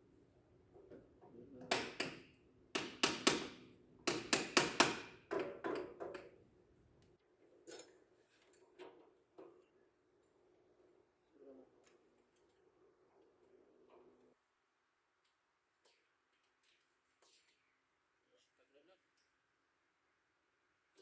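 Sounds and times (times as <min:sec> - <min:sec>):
tools knocking on metal: 0:01.6 - 0:06.3.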